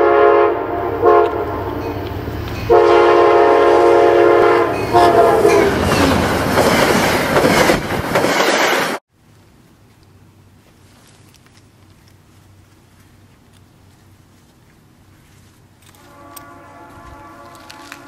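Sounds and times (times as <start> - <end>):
locomotive air horn: 0.0 - 2.0, 2.7 - 6.0, 15.9 - 18.0
train rumble and wheel clatter: 0.6 - 9.0, 11.8 - 18.0.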